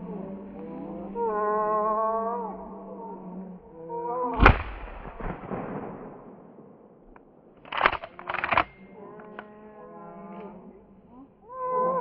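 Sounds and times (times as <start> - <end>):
shotgun shot: 4.4 - 6.8.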